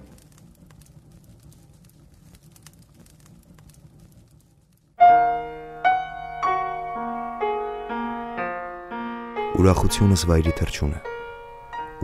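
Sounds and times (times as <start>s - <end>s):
slow piano notes: 5.0s - 12.0s.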